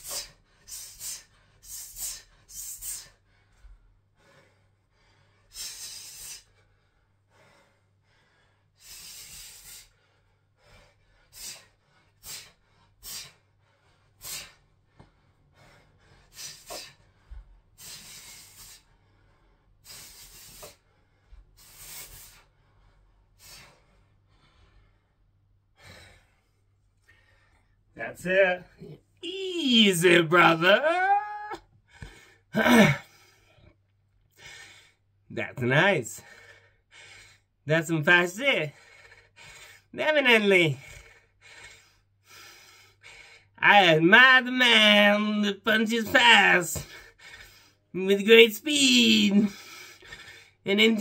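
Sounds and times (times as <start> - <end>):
man's sharp hissing exhalations: 0.0 - 3.2, 5.5 - 6.6, 8.8 - 10.0, 11.3 - 13.4, 17.8 - 18.9, 19.8 - 20.8, 21.6 - 22.5.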